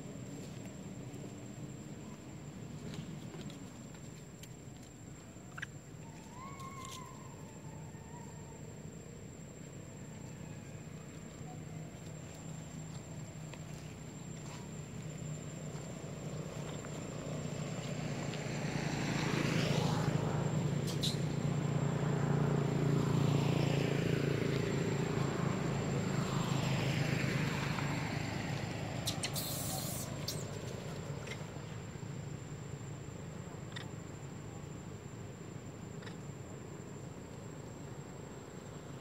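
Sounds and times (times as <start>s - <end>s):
vehicle engine passing: 16.0s - 31.2s
brief hiss: 29.0s - 30.2s.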